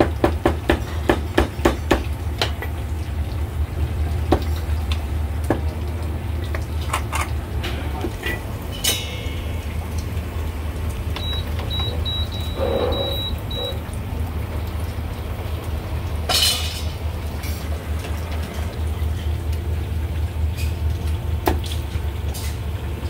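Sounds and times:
kitchen background hum: 0.0s - 23.0s
short high-pitched beeps: 11.2s - 13.8s.

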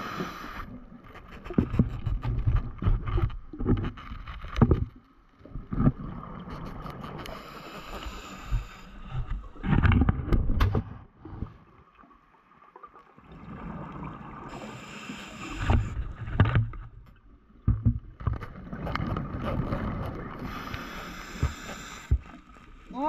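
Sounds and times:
regulator inhale hiss: 0.0s - 0.8s, 7.2s - 9.2s, 14.5s - 16.0s, 20.4s - 22.5s.

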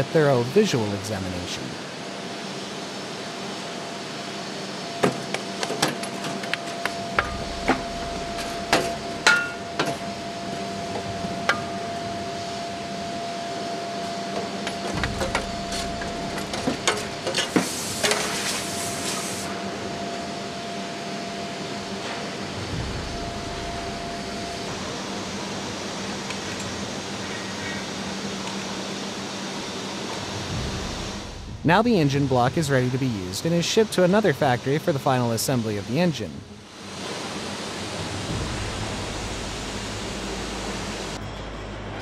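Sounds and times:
steady machine hum: 0.0s - 42.0s
hiss: 17.4s - 19.6s.

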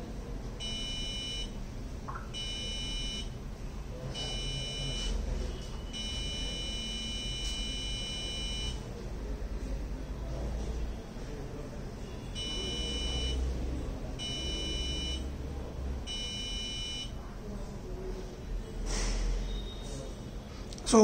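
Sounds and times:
buzzer beeping: 0.6s - 1.6s, 2.3s - 3.4s, 4.1s - 8.8s, 12.2s - 13.5s, 14.1s - 15.4s, 16.0s - 17.2s.

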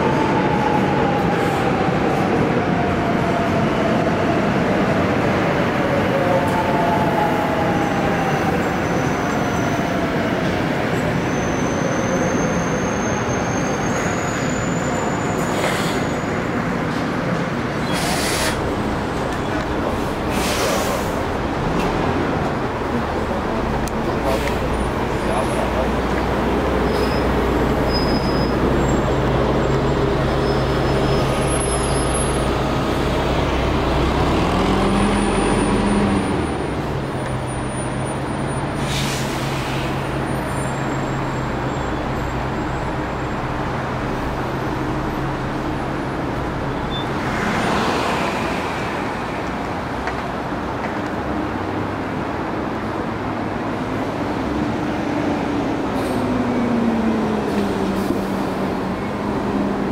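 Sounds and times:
bus accelerating and passing: 0.0s - 59.9s
bus engine: 0.0s - 59.9s
traffic: 0.0s - 59.9s
air brake hisses: 15.4s - 16.2s, 17.8s - 18.6s, 20.3s - 21.2s, 38.8s - 40.0s.

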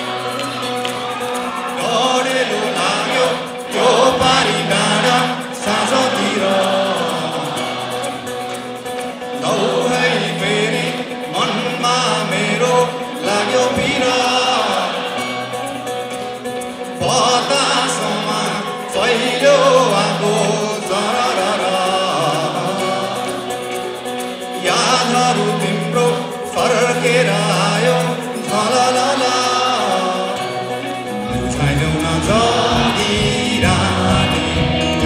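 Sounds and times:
acoustic guitar: 0.0s - 35.0s
man singing: 1.2s - 35.0s
bass: 30.8s - 35.0s.

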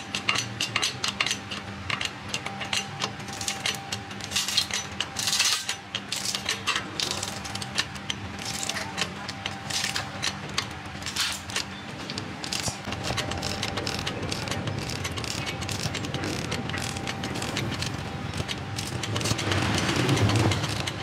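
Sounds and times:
crackling and ticking clicks: 0.1s - 21.0s
steady low rumble: 6.3s - 21.0s.

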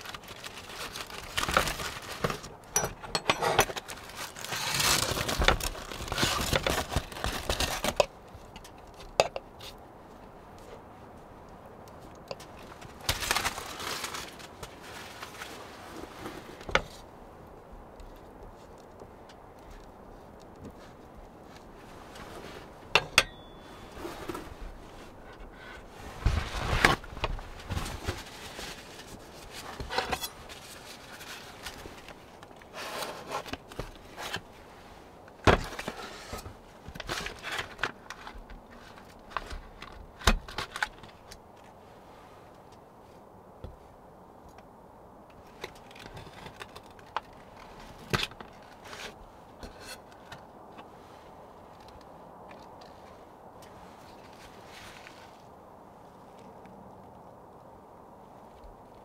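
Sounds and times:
objects clinking and knocking: 2.7s - 3.9s, 23.0s - 23.7s.

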